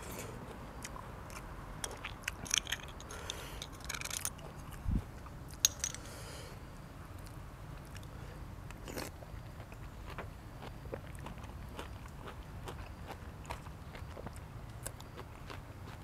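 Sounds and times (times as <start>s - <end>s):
person chewing food: 0.0s - 4.8s, 8.7s - 16.0s.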